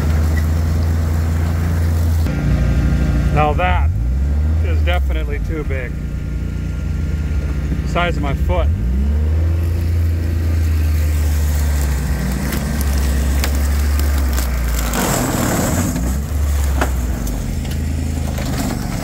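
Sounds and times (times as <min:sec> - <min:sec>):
off-road vehicle engine running: 0:00.0 - 0:19.0
sticks and brush crackling and snapping: 0:09.5 - 0:19.0.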